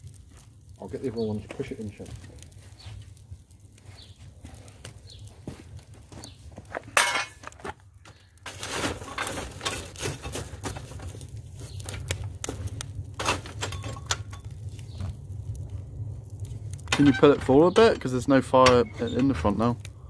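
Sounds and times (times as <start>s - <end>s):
poker clinking and scraping coals: 0.0s - 20.0s
low rumble: 10.9s - 20.0s.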